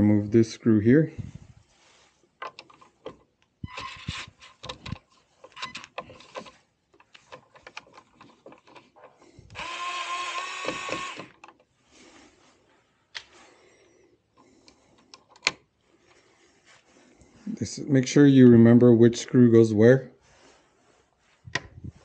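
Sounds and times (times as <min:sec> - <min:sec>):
screwdriver clicks and rattles: 0:02.4 - 0:11.7, 0:14.6 - 0:15.6.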